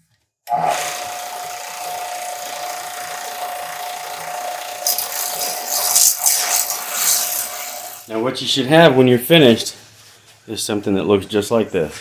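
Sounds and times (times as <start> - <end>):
belt sander whining: 0.4 - 8.1
metal pipe grinding on belt: 0.5 - 8.1.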